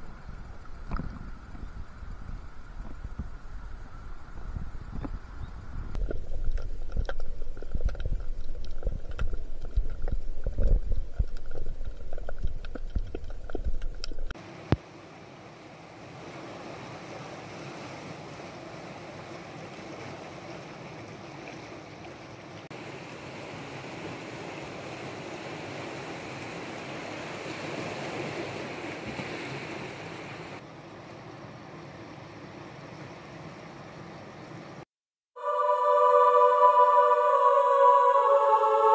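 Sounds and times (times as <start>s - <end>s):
underwater rumble of water: 0.0s - 14.4s
small crackling clicks: 6.0s - 14.4s
sea waves washing on rocks: 15.6s - 21.5s, 22.7s - 30.6s.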